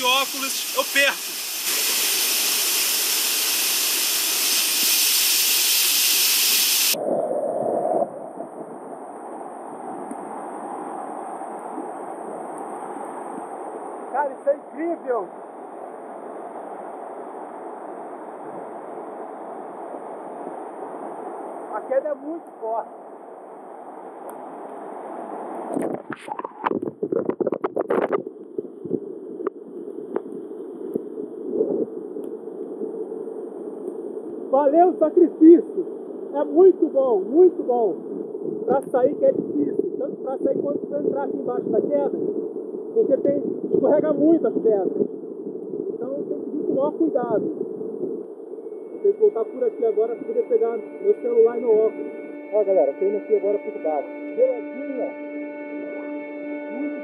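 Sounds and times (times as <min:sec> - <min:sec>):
waterfall rushing onto microphone: 0:00.0 - 0:07.0.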